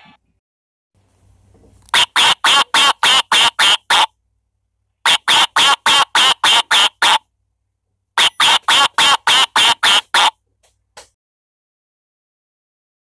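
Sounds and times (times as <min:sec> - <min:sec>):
recorded animal calls from speaker: 0:01.9 - 0:04.2, 0:05.1 - 0:07.3, 0:08.2 - 0:10.4.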